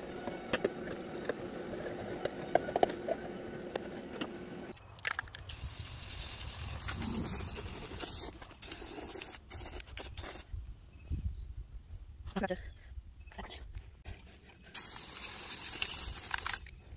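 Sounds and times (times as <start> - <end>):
spray paint can hissing: 5.5 - 10.4, 14.7 - 16.6
low wind rumble on microphone: 10.4 - 14.0.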